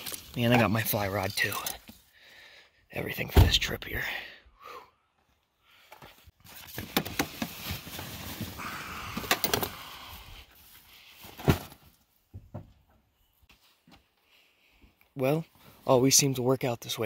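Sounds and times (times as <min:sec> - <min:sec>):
fishing gear rustling and clattering: 0:00.0 - 0:02.1, 0:05.9 - 0:12.1.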